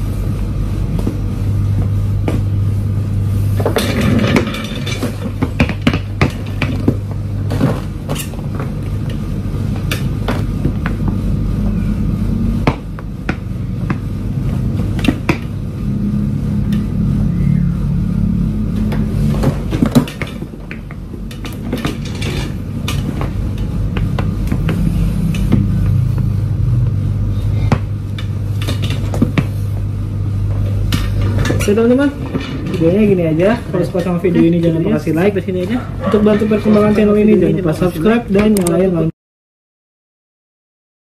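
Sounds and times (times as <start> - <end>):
steady low hum: 0.0 - 39.1
sneakers tapping on tile floor: 0.9 - 2.6, 5.2 - 9.2, 12.6 - 15.6, 18.9 - 22.0, 22.9 - 27.0, 27.6 - 28.0, 29.0 - 29.9.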